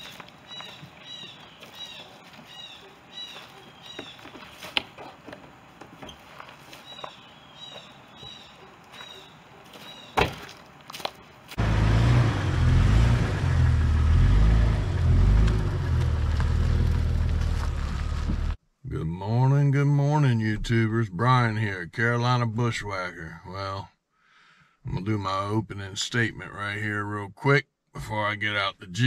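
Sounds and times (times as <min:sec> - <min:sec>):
bird chirping: 0:00.0 - 0:05.4, 0:06.0 - 0:10.5
car engine rumbling: 0:09.4 - 0:18.6.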